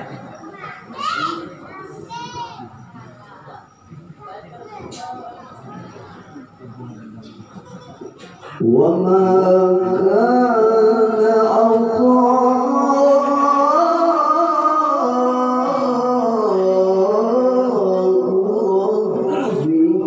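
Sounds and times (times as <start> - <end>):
man chanting through a microphone: 8.6 - 20.0.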